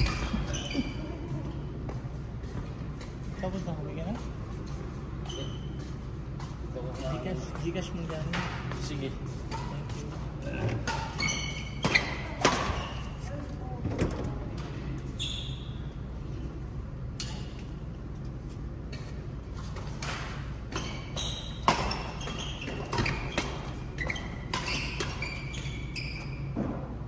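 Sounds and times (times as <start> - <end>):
shoes squeaking on floor: 0.0 - 3.4, 4.6 - 13.2, 15.0 - 15.9, 20.6 - 26.6
steady low hum: 0.0 - 27.0.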